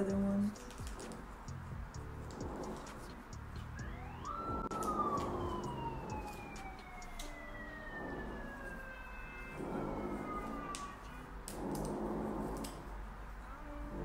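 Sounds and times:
distant siren wailing: 0:01.0 - 0:14.0.

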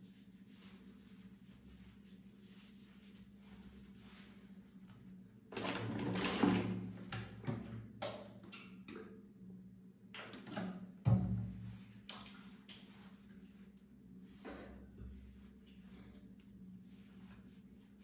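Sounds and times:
toiletry containers rustling and clattering: 0:05.5 - 0:07.8.

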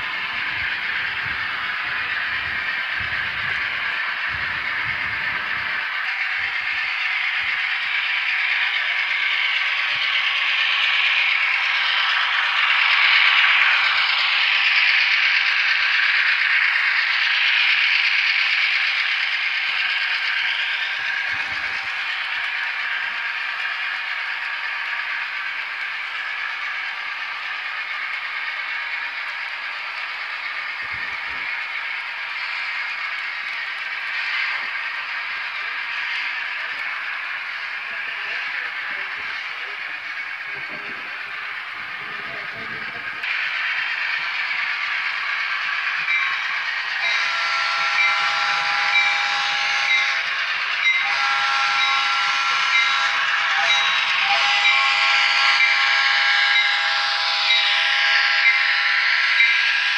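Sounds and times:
model train cars rattling on rails: 0:00.0 - 0:59.9.

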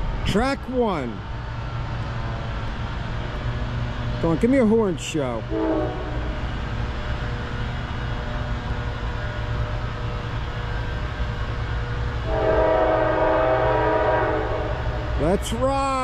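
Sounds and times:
locomotive air horn: 0:05.5 - 0:06.4, 0:12.2 - 0:15.0.

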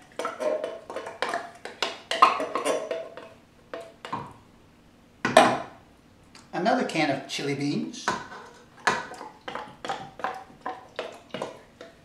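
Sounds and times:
spoon knocking inside a metal can: 0:00.0 - 0:04.4, 0:08.1 - 0:12.0.

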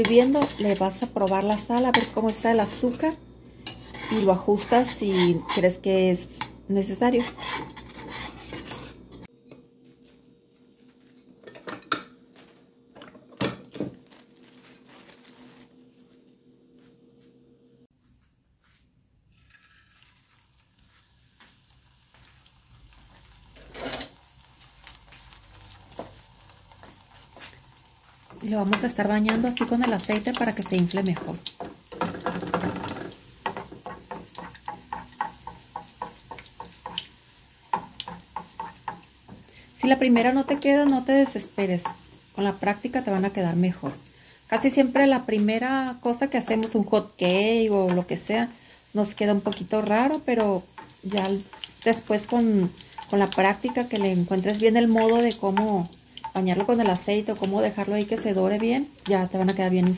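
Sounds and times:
rustling: 0:13.9 - 0:16.2
spatula splashing frying oil: 0:24.5 - 0:42.1, 0:49.1 - 0:59.9.

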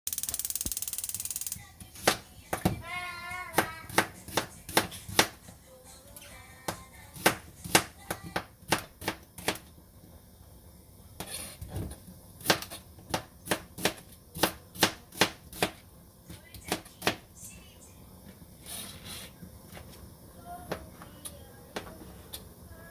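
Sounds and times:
knife chopping on cutting board: 0:03.5 - 0:05.4, 0:12.4 - 0:15.8.

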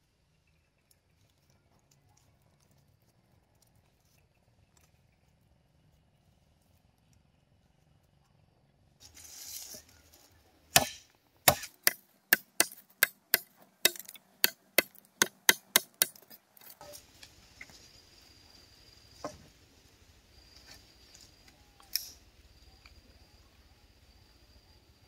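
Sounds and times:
wood chopping blows: 0:10.7 - 0:16.4.

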